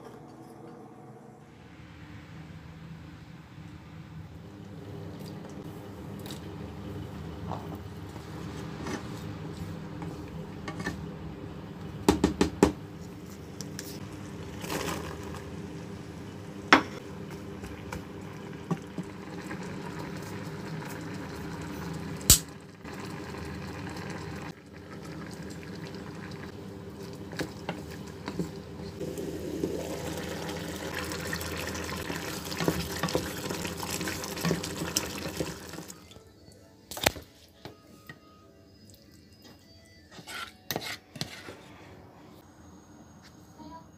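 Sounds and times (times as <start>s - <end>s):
liquid simmering and bubbling in pan: 17.0s - 36.0s.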